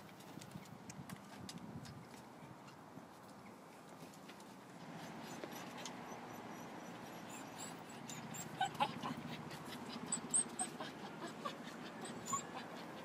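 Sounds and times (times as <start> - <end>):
dog whimpering: 5.0 - 13.0.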